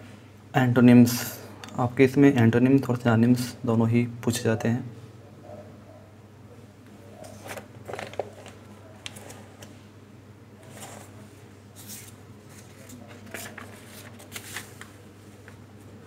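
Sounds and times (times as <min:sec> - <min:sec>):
paper pages rustling: 0:07.2 - 0:09.7, 0:10.6 - 0:15.9.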